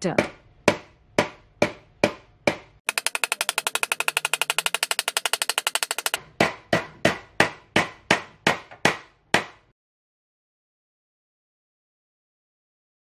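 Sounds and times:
hammer tapping saw teeth: 0.2 - 6.2.

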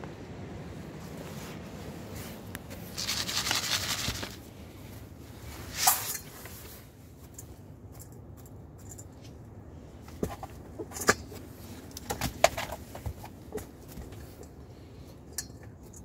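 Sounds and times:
rustling in wood shavings: 1.0 - 7.3.

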